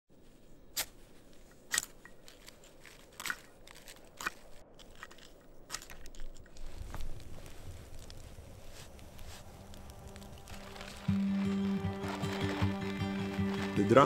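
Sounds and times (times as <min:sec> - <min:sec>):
fire crackling and popping: 0:00.7 - 0:14.0.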